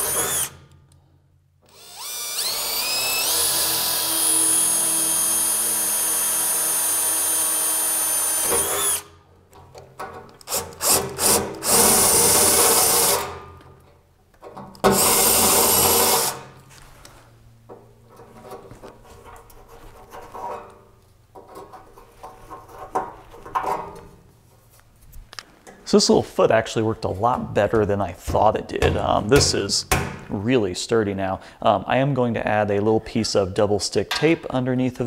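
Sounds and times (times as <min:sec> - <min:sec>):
cordless drill drilling metal: 0:00.0 - 0:00.6, 0:01.6 - 0:09.1, 0:10.5 - 0:13.3, 0:14.9 - 0:16.4.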